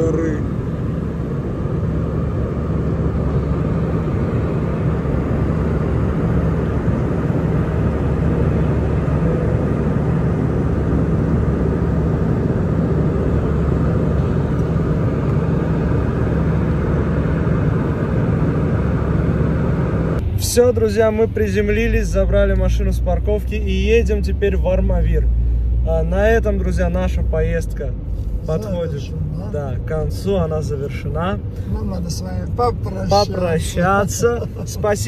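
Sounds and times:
jet engine cabin rumble: 0:00.0 - 0:22.8, 0:27.2 - 0:35.0.

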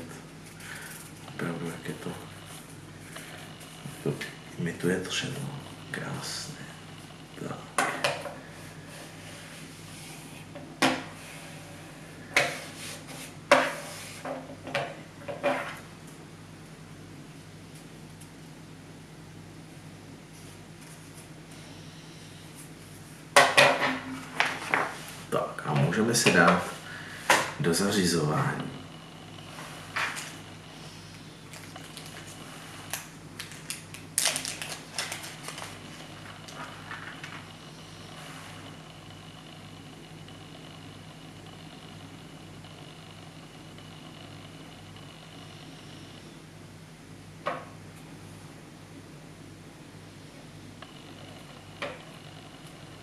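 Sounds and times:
faint low hum: 0:00.0 - 0:53.0
plastic bag crinkling: 0:31.5 - 0:37.3.

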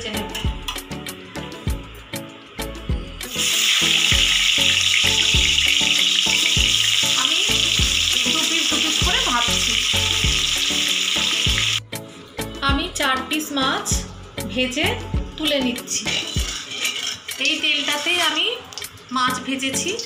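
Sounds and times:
background music with steady beat: 0:00.0 - 0:20.0
fish sizzling in hot oil: 0:01.9 - 0:11.8, 0:15.8 - 0:20.0.

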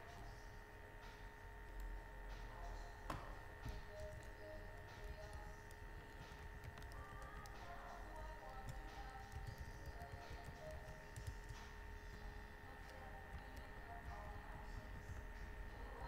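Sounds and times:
faint background whine: 0:00.0 - 0:16.0.

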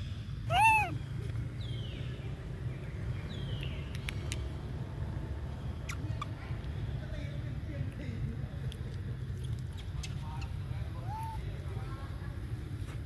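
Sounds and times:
high-pitched animal call: 0:00.5 - 0:01.0, 0:11.0 - 0:11.4.

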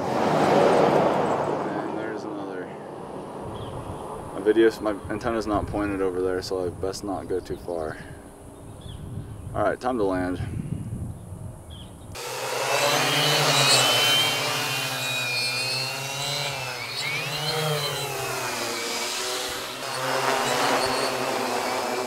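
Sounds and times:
quadcopter buzzing: 0:12.2 - 0:22.0.

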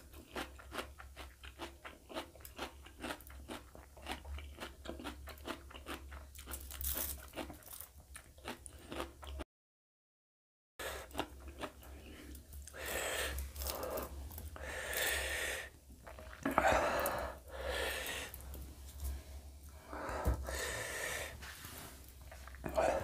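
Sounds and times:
man breathing heavily through mouth: 0:19.7 - 0:21.6.

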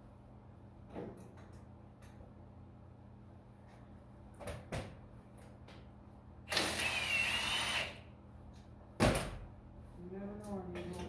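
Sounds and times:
power tool whining: 0:06.5 - 0:08.1.

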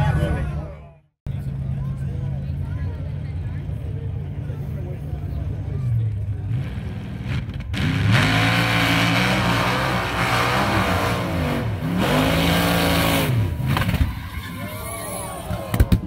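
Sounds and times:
race engine revving: 0:06.4 - 0:14.1.

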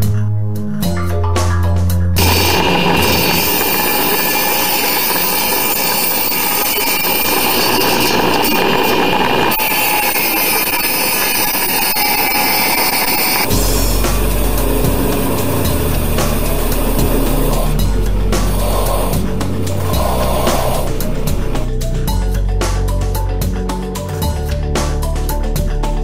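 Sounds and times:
table saw cutting wood: 0:02.2 - 0:21.7.

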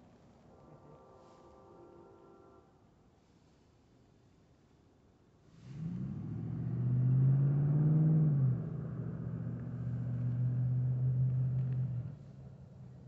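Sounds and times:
vehicle engine accelerating: 0:05.6 - 0:13.0.

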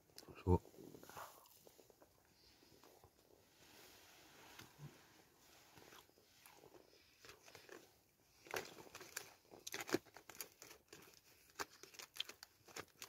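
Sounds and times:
biscuit crunching and chewing: 0:05.8 - 0:13.0.

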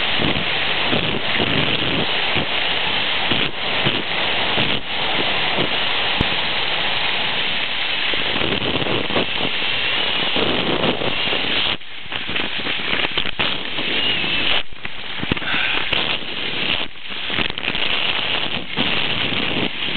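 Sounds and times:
wind buffeting microphone: 0:00.0 - 0:19.9.

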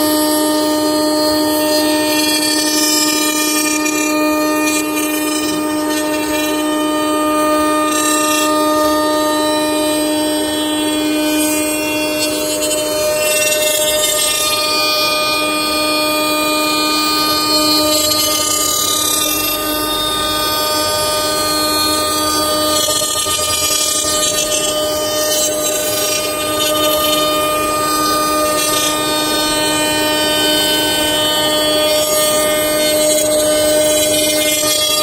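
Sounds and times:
router spindle whine: 0:00.0 - 0:35.0.

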